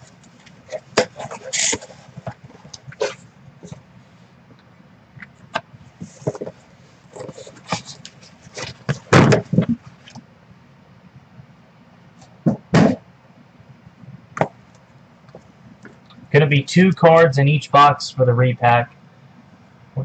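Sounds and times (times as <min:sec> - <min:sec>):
cardboard boxes scraping and rustling: 0:00.7 - 0:03.8, 0:06.0 - 0:10.0
box thumps: 0:08.6 - 0:09.8, 0:12.4 - 0:13.0.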